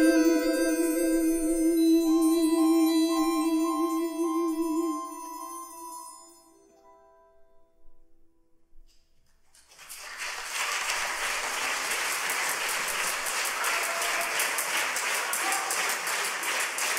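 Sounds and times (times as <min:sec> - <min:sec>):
audience applause: 0:09.7 - 0:16.9.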